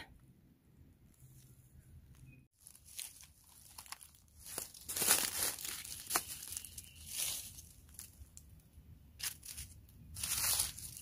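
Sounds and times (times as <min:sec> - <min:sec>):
faint high chirp: 0:01.7 - 0:02.6, 0:06.0 - 0:07.7.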